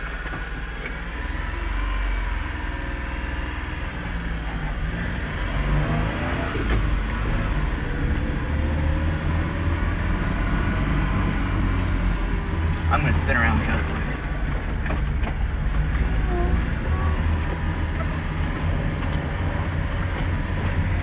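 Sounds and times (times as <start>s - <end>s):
small truck engine accelerating: 0.0s - 21.0s.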